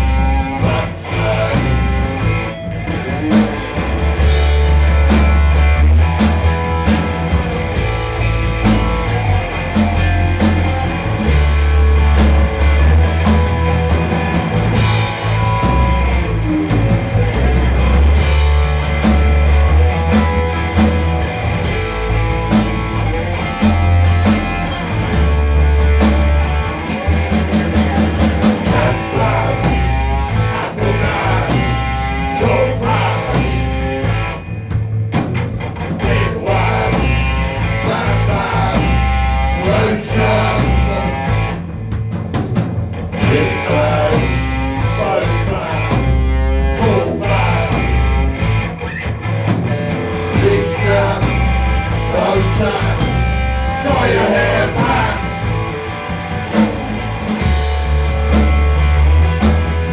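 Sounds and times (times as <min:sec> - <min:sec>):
pulsing bass line: 0:00.0 - 0:59.9
person singing into a microphone: 0:50.4 - 0:51.4, 0:52.1 - 0:53.0, 0:53.8 - 0:55.3.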